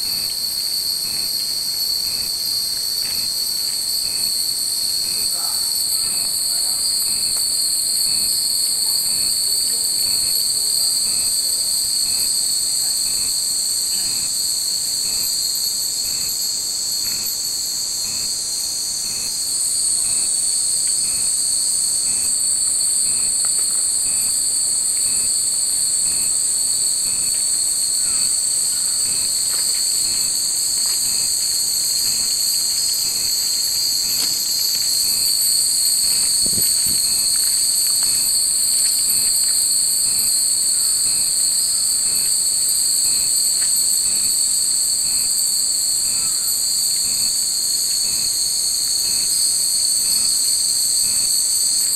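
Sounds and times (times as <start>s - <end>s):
cicadas droning: 0.0s - 51.9s.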